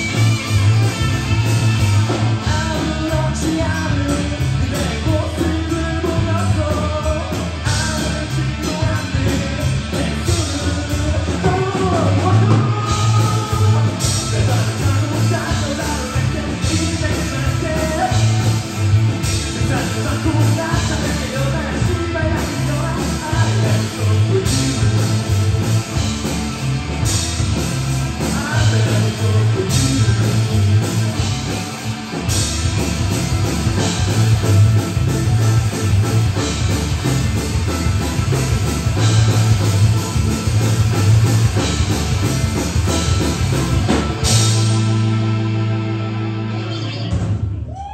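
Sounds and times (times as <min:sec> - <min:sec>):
rock band playing: 0:00.0 - 0:47.9
man singing lead vocal: 0:02.1 - 0:25.6, 0:28.2 - 0:31.4.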